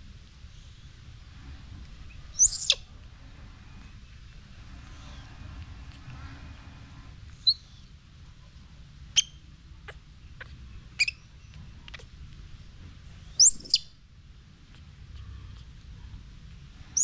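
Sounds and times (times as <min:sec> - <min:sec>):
baby monkey squeaking: 0:02.4 - 0:02.8, 0:07.4 - 0:07.9, 0:09.1 - 0:12.2, 0:13.3 - 0:13.9.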